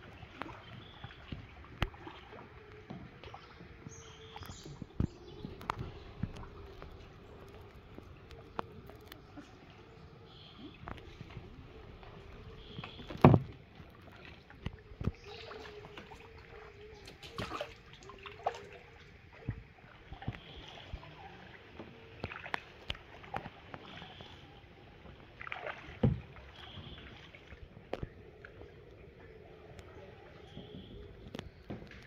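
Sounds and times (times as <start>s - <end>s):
paddle dipping in water: 0.0s - 32.0s
paddle knocking on kayak hull: 12.5s - 13.7s.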